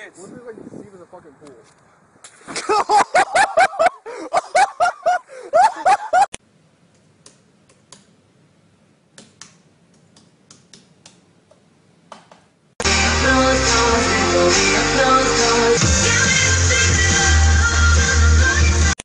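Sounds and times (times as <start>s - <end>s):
loud laughing: 2.5s - 6.3s.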